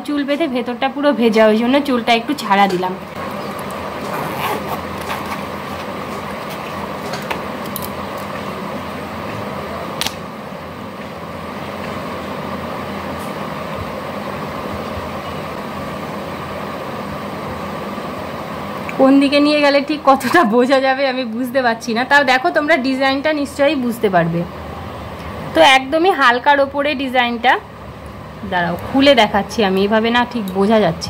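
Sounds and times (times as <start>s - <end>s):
steady hum and rush: 0.0s - 20.1s.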